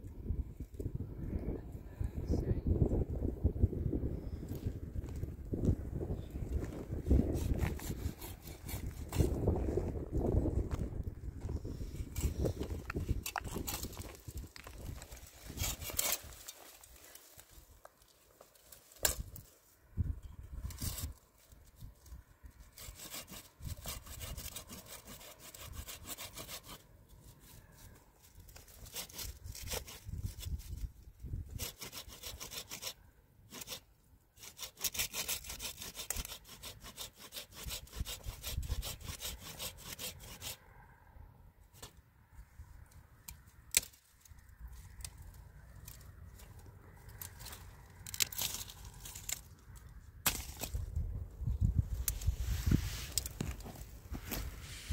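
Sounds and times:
saw cutting wood: 0:07.3 - 0:09.4, 0:15.4 - 0:16.4, 0:22.7 - 0:27.4, 0:28.6 - 0:30.1, 0:31.5 - 0:33.8, 0:34.4 - 0:40.6.

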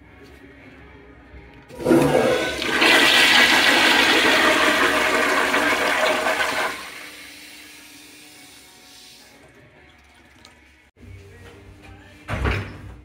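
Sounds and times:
toilet flushing: 0:01.7 - 0:10.7.

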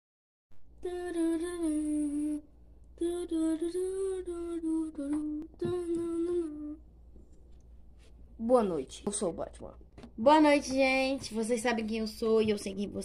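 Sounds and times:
person humming a wordless tune: 0:00.8 - 0:06.9.

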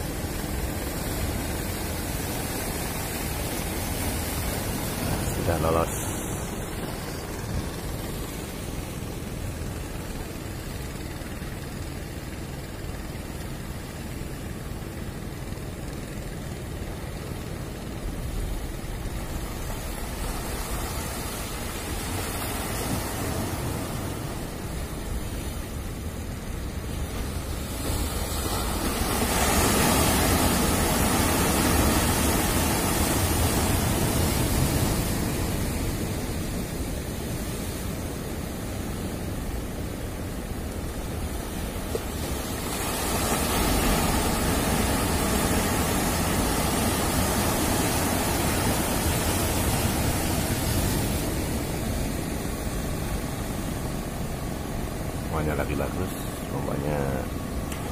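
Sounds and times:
ocean waves breaking: 0:00.0 - 0:57.9.

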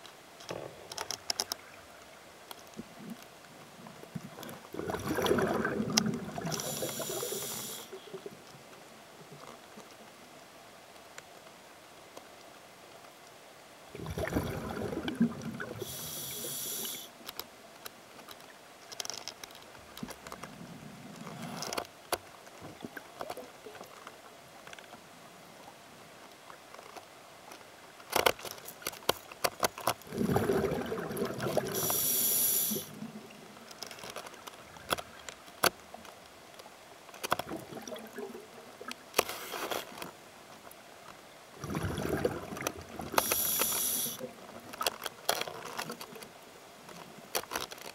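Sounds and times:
regulator breathing bubbles: 0:04.9 - 0:07.9, 0:30.1 - 0:33.0, 0:43.1 - 0:44.2
regulator hiss: 0:06.6 - 0:08.0, 0:15.8 - 0:17.2, 0:31.7 - 0:32.9, 0:43.2 - 0:44.3.

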